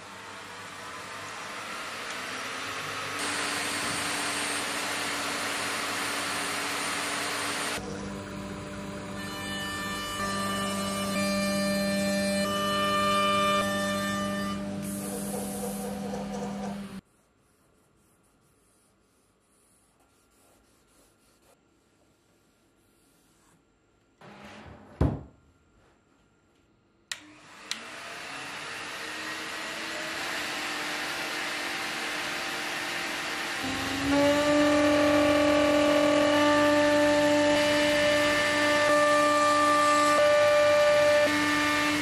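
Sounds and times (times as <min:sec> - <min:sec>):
vacuum pump hum and whine: 0:00.0 - 0:11.7
click: 0:26.6 - 0:27.8.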